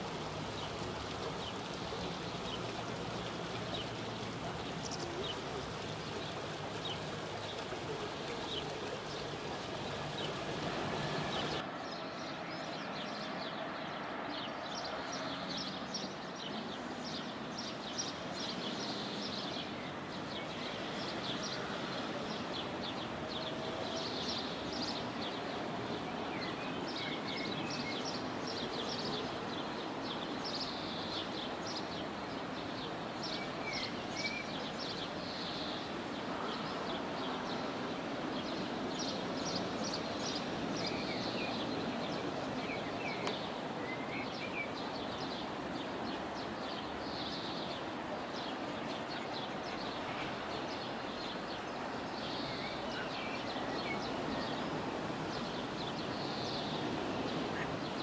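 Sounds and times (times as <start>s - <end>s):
small birds chirping: 0.0s - 12.0s
river water running over stones: 0.0s - 58.0s.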